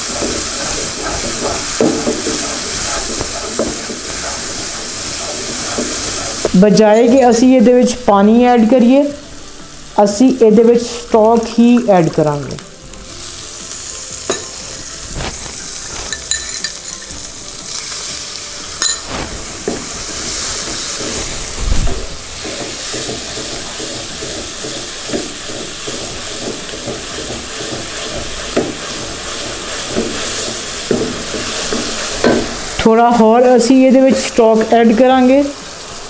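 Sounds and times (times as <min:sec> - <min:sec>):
spatula knocking and scraping pan: 0:00.0 - 0:07.2, 0:18.8 - 0:34.6
liquid sizzling and bubbling: 0:00.0 - 0:36.0.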